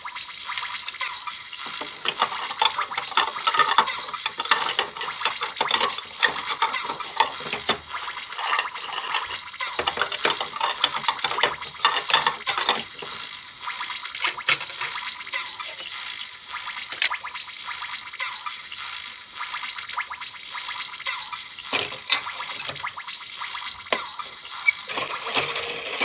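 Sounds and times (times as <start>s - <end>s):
plastic toy utensils clacking: 0.8s - 13.2s, 14.1s - 17.2s, 21.7s - 23.0s, 23.8s - 26.0s.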